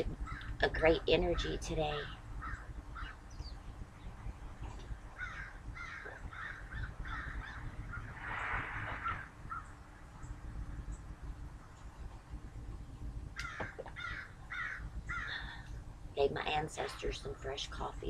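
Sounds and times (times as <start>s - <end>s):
low steady rumble: 0.0s - 18.0s
crows cawing: 0.3s - 0.5s, 2.0s - 3.2s, 5.2s - 8.2s, 9.0s - 9.7s, 13.4s - 15.6s.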